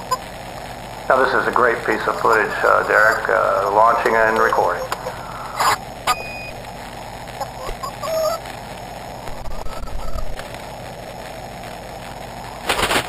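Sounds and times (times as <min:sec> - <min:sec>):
loud burst of noise: 0:00.0 - 0:13.0
steady hiss: 0:00.0 - 0:13.0
hen clucking: 0:01.2 - 0:05.8, 0:07.4 - 0:08.4, 0:09.3 - 0:10.4.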